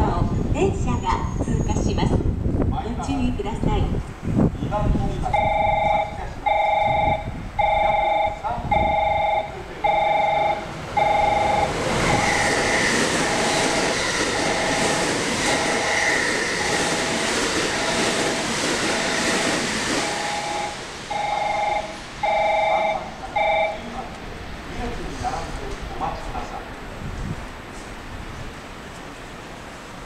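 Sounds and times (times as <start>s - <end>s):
train rushing past: 0.0s - 30.0s
train wheel squeal: 0.8s - 2.1s, 5.4s - 22.8s
electronic warning chime: 5.3s - 12.7s, 20.2s - 24.0s.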